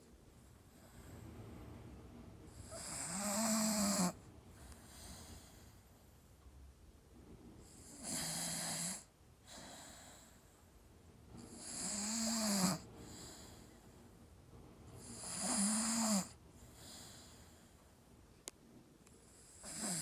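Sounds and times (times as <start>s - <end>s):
dog snoring: 2.5s - 5.8s, 7.6s - 10.5s, 11.4s - 13.9s, 15.0s - 17.8s, 19.2s - 20.0s
dog breathing quietly: 12.8s - 14.2s, 15.9s - 18.0s.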